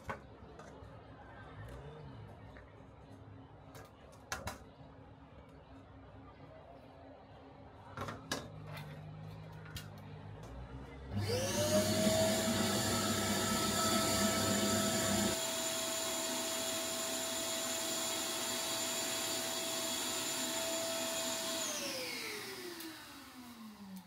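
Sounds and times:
electric motor whining: 0:11.2 - 0:24.0.

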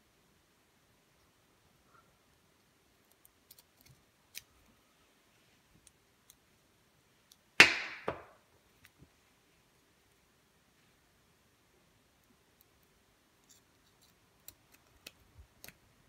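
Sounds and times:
loud sharp knock: 0:07.6 - 0:08.3.

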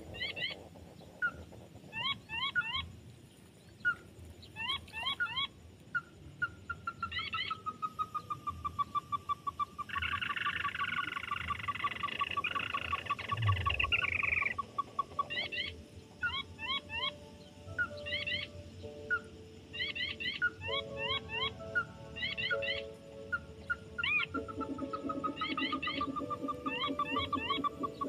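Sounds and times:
crakes calling: 0:07.1 - 0:28.0
low thump: 0:13.3 - 0:14.0.

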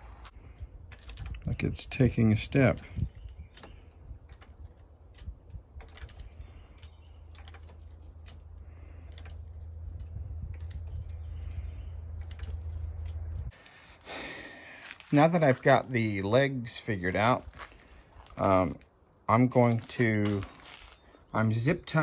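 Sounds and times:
plastic pipe fittings clicking: 0:00.2 - 0:13.6
low rumble: 0:07.8 - 0:13.6.

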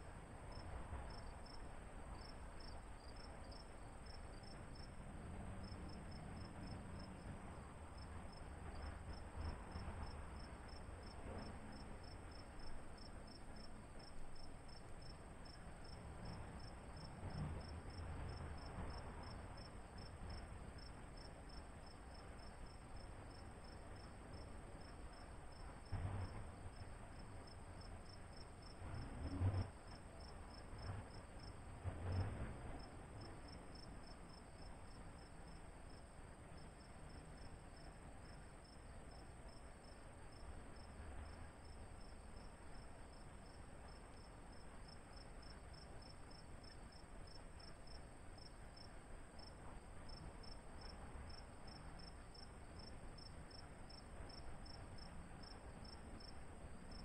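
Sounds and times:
insect chirping: 0:02.2 - 0:04.9, 0:50.1 - 0:57.0.

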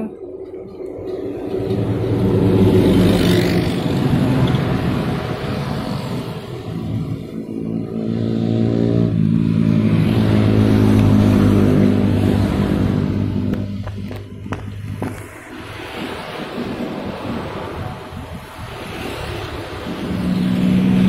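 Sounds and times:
vehicle passing: 0:00.1 - 0:21.0
minibus engine driving past: 0:00.2 - 0:15.5.

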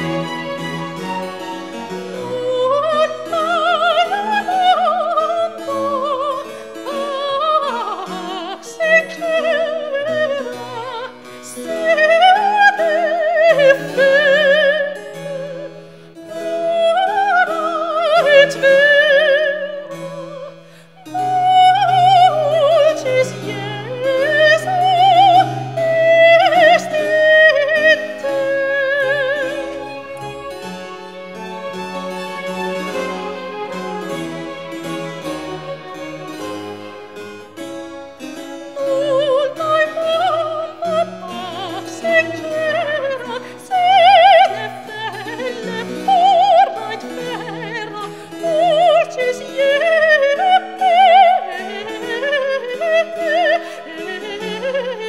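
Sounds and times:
soprano singing with vibrato: 0:00.0 - 0:37.1, 0:38.2 - 0:55.0
harpsichord chords: 0:00.0 - 0:55.0
string ensemble: 0:00.0 - 0:55.0.

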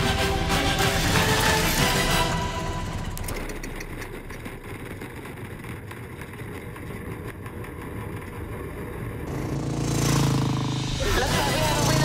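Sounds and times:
lawn mower engine at speed: 0:00.0 - 0:12.0.

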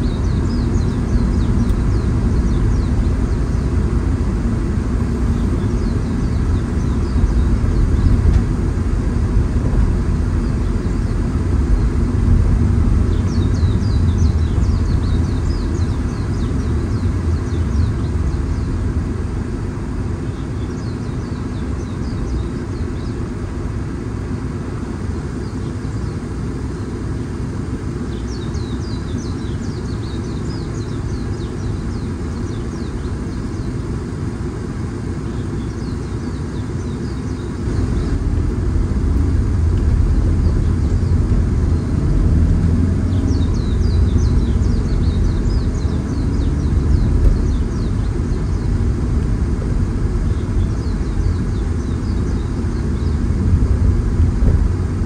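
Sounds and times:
car driving road rumble: 0:00.0 - 0:55.0
high bird chirps: 0:43.0 - 0:48.8.

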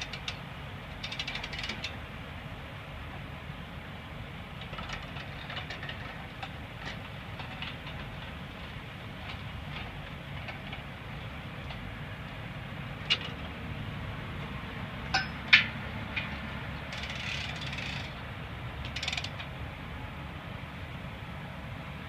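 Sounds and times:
low outdoor rumble: 0:00.0 - 0:22.0
metal parts clinking and knocking: 0:04.6 - 0:08.2, 0:15.1 - 0:18.2
metal clatter: 0:04.6 - 0:08.4, 0:15.1 - 0:18.2
scraping rattle: 0:04.6 - 0:08.4, 0:15.1 - 0:18.2.

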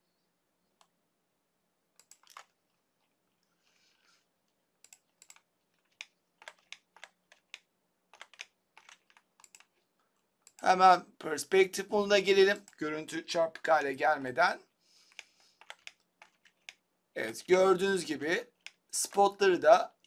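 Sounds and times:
computer mouse and keyboard clicks: 0:02.0 - 0:03.4, 0:04.8 - 0:09.8, 0:15.1 - 0:16.8.

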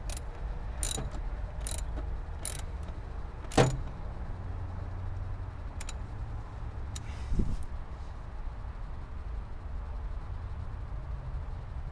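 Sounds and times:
metal clunk: 0:00.8 - 0:04.0.

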